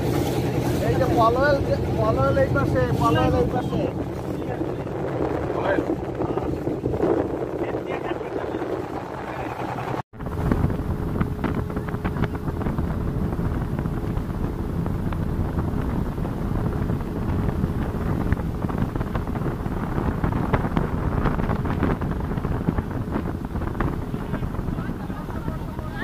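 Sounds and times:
speedboat engine and water rush: 0.0s - 26.0s
wind buffeting microphone: 0.0s - 26.0s.

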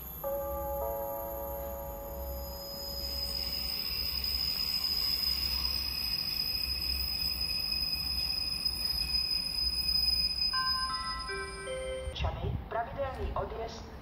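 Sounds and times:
high-pitched whine: 0.0s - 12.1s.

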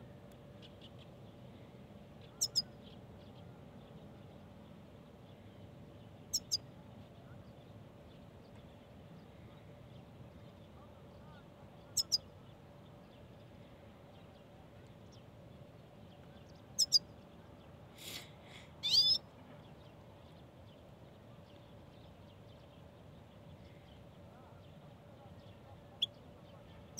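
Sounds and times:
bird chirping: 2.2s - 4.4s, 6.3s - 6.7s, 10.5s - 13.5s, 16.1s - 17.3s, 18.8s - 20.8s.

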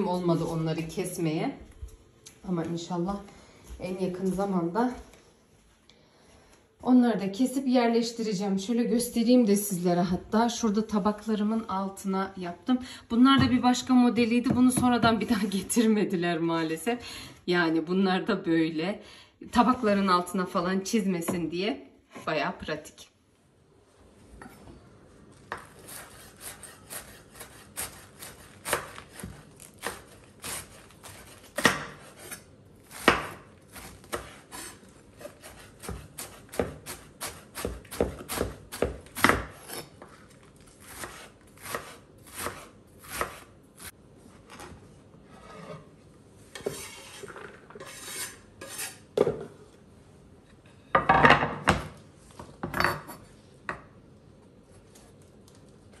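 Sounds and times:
knife slicing lettuce on board: 25.5s - 43.9s.

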